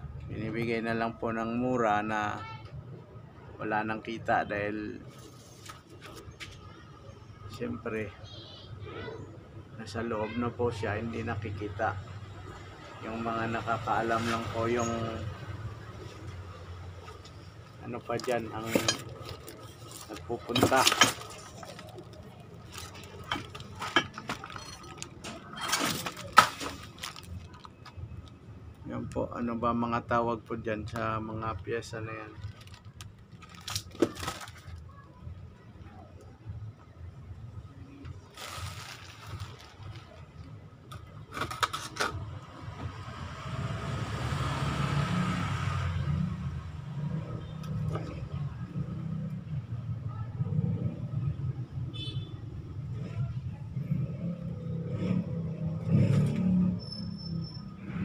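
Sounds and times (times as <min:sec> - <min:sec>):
metal parts clinking: 0:18.2 - 0:27.7
passing vehicle rumble: 0:42.2 - 0:51.8.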